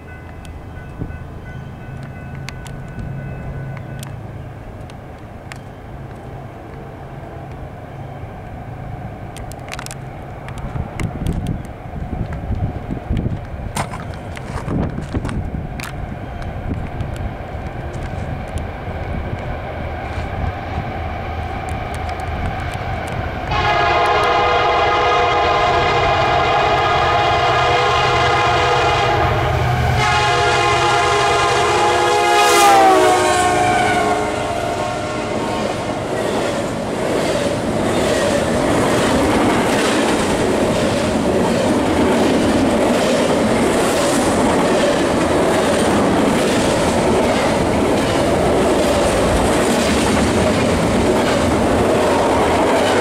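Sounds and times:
train air horn blasts: 23.5 - 36.0
train wheels clacking on rails: 35.4 - 53.0.

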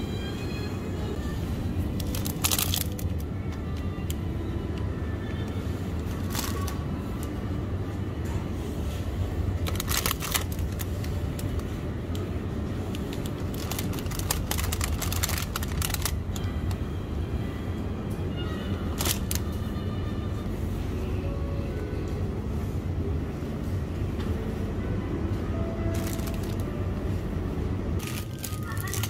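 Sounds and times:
steady low hum: 0.0 - 29.0
plastic wrappers crinkling: 2.0 - 4.2, 6.0 - 7.3, 9.6 - 11.7, 12.8 - 16.8, 18.9 - 19.5, 26.0 - 26.8, 28.0 - 29.0.

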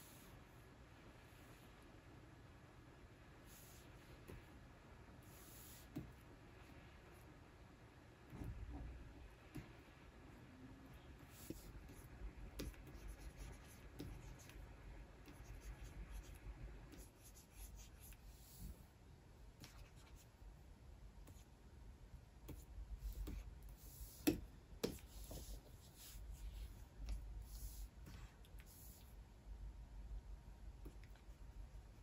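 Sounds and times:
pen nib scratching and tapping: 11.3 - 14.6.

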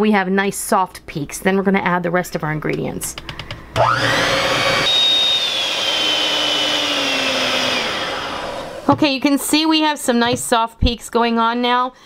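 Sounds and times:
electric hand mixer whining: 3.8 - 9.0.

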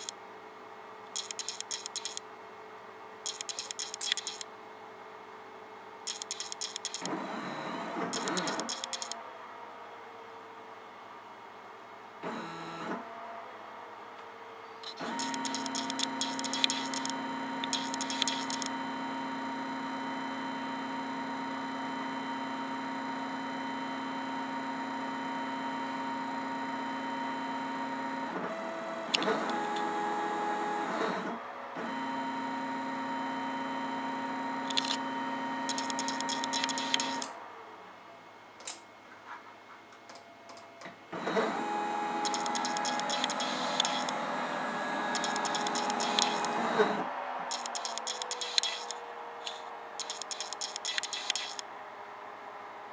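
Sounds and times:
stepper motor whining: 41.2 - 51.6.

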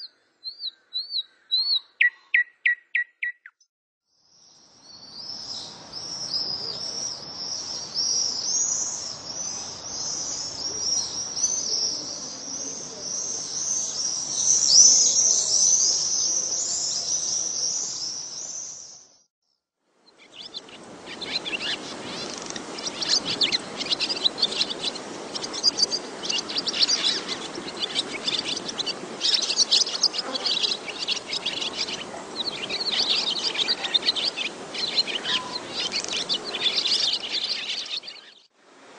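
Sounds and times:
birds chirping and singing: 0.0 - 3.5, 20.1 - 38.5
bird sharp chirps: 0.0 - 3.6.

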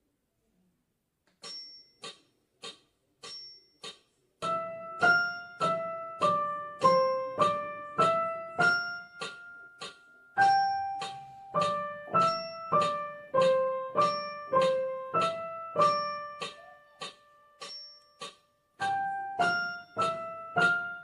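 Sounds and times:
digital piano waltz melody: 4.4 - 21.0.

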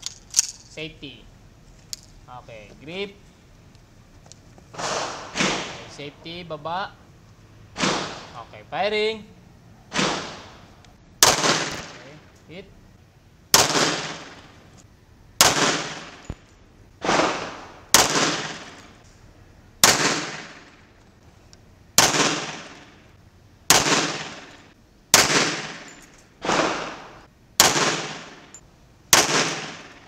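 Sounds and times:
pistol shots: 4.8 - 6.0, 7.8 - 8.4, 9.9 - 12.2, 13.5 - 14.6, 15.4 - 16.4, 17.0 - 19.0, 19.8 - 20.8, 22.0 - 23.0, 23.7 - 30.0.

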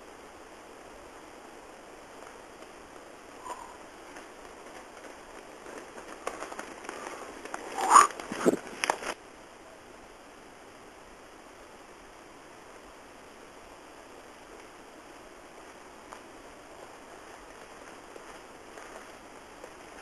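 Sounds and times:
steady hiss: 0.0 - 20.0
unicycle crunching over dry leaves: 3.4 - 9.2, 15.5 - 20.0.

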